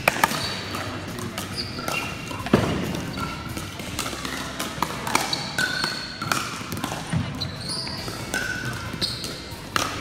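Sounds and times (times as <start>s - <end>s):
paddles hitting plastic ball: 0.0s - 7.3s, 7.9s - 10.0s
sneakers squeaking on hardwood: 1.5s - 3.6s, 7.1s - 9.6s.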